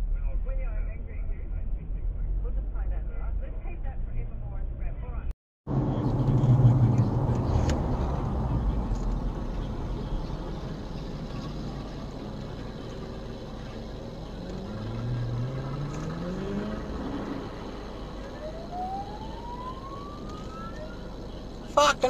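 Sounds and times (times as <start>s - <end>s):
low engine rumble: 0.0s - 22.0s
car engine revving: 5.7s - 21.8s
police siren winding up: 18.2s - 21.2s.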